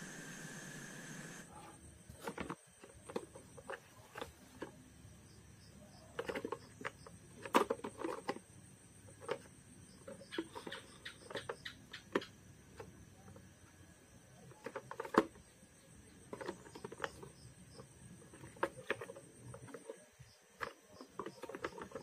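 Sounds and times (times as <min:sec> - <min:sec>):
plastic toy cars knocking together: 0:14.5 - 0:15.5, 0:20.6 - 0:22.0.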